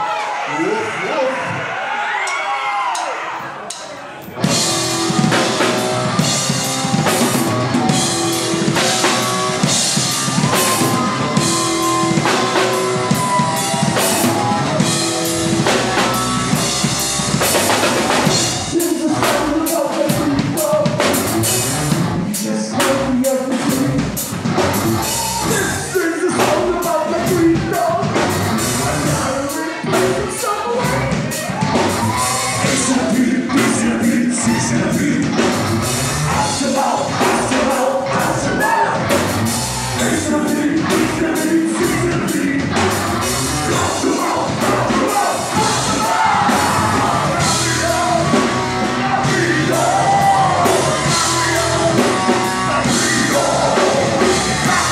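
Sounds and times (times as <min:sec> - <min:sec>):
drum kit: 0:02.3 - 0:54.9
electric guitar: 0:04.4 - 0:54.9
person singing: 0:18.0 - 0:24.3, 0:25.0 - 0:54.9.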